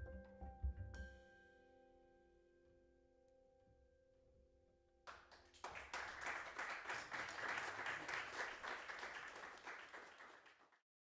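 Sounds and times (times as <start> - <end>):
audience applauding: 5.1 - 10.8.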